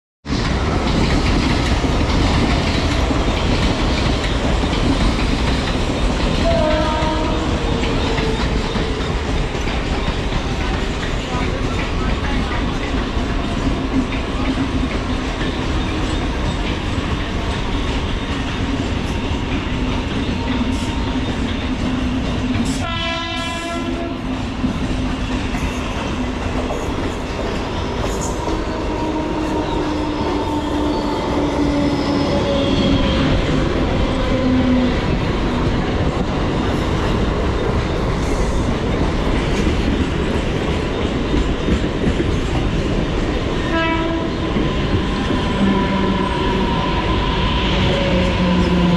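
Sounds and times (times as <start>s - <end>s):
train rumble and wheel clatter: 0.2s - 48.9s
train horn blast: 6.4s - 8.4s, 22.7s - 24.4s, 43.6s - 44.6s, 45.4s - 48.9s.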